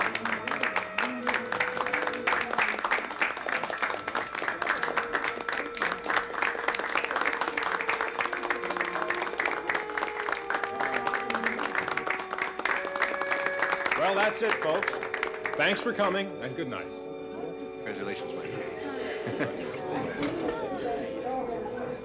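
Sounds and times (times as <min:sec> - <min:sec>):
audience applauding: 0:00.0 - 0:16.2.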